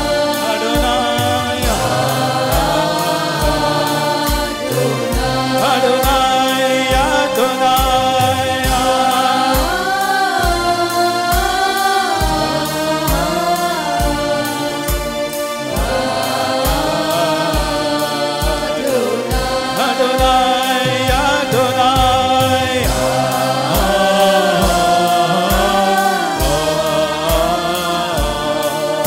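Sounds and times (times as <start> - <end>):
man singing: 0.0 - 9.8, 15.6 - 29.0
steady drum beat: 0.0 - 29.0.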